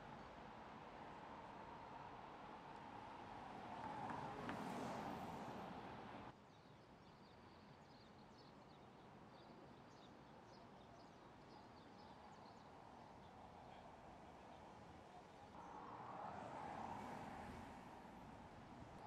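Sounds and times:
quiet street ambience: 0.0 - 19.0
car tyres rushing past: 3.0 - 6.3, 15.6 - 19.0.

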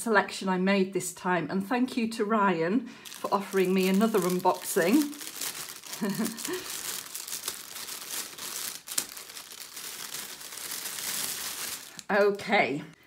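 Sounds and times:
plastic bag crinkling: 3.0 - 12.4.

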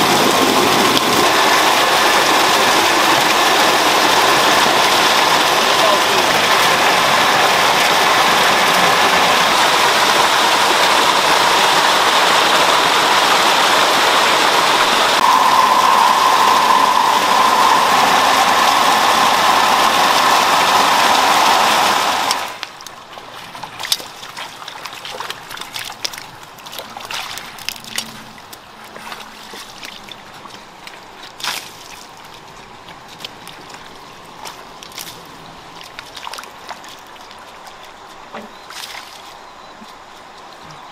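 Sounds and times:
small splashes and clicks: 22.3 - 40.8
wading in shallow water: 22.5 - 40.9.

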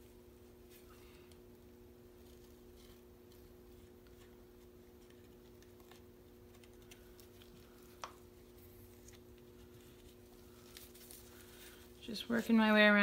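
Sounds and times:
steady low hum: 0.0 - 13.0
gloved hands tapping and rubbing: 3.2 - 11.3.

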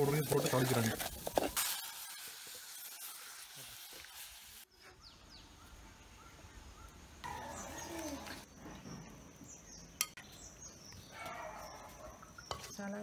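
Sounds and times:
birds chirping: 4.7 - 13.0.

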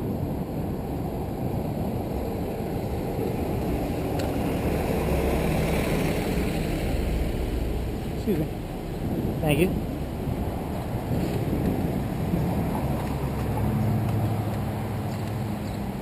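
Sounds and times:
bus engine humming: 0.0 - 16.0
wind rumbling on microphone: 0.0 - 16.0.

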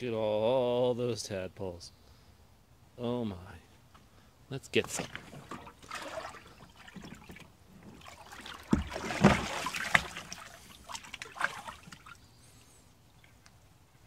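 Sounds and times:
water splashing and sloshing: 4.7 - 12.3.

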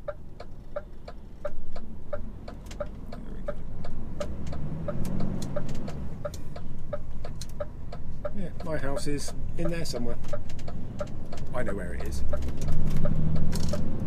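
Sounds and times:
diesel engine running: 0.0 - 14.0
turn indicator ticking: 0.0 - 14.0.

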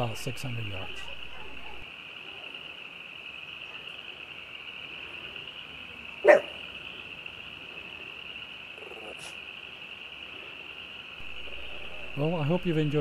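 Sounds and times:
dog barking: 0.8 - 1.8, 6.2 - 6.6
high-pitched background chorus: 11.2 - 13.0.

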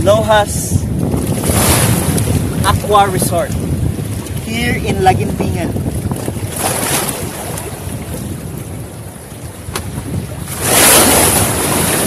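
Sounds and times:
sea waves splashing: 0.0 - 12.0
wind buffeting microphone: 0.0 - 12.0
wave crashing: 1.1 - 8.7, 9.5 - 12.0.

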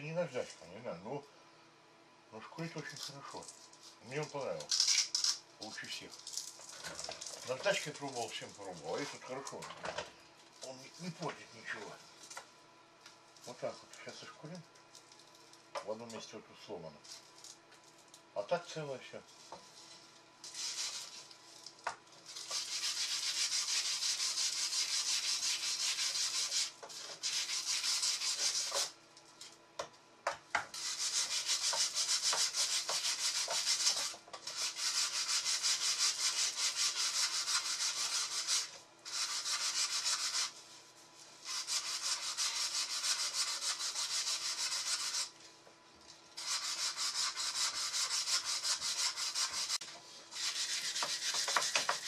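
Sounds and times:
hand sanding wood: 20.5 - 21.3, 22.3 - 29.0, 30.7 - 40.7, 41.4 - 45.4, 46.4 - 52.0.

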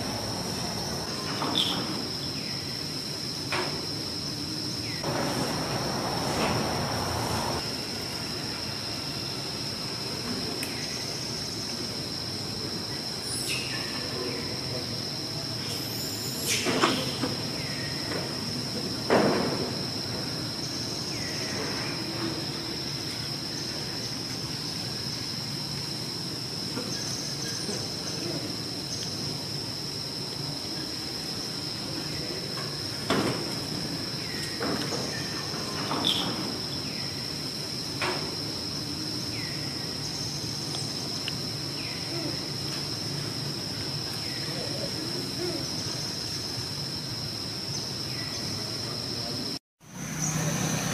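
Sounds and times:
high-pitched insect drone: 33.7 - 50.9.

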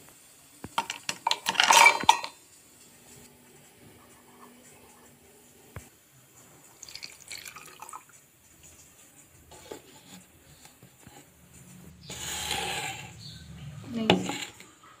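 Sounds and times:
milk pouring into a steel jar: 6.7 - 8.9.

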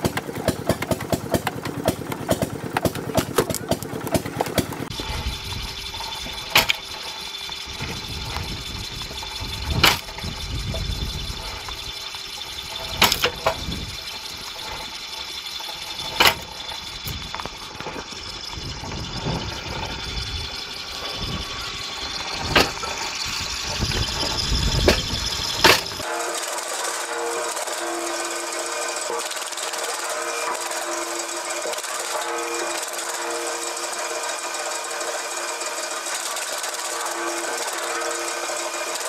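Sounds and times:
wood cracking as it splits: 0.0 - 4.9
mechanical wood splitter running: 0.0 - 39.0.

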